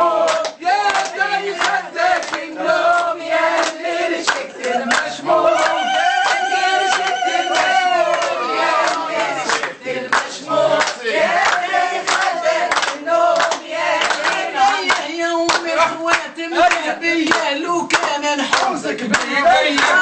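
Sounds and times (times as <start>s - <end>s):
group of people singing: 0.0s - 20.0s
rhythmic hand clapping: 0.0s - 20.0s.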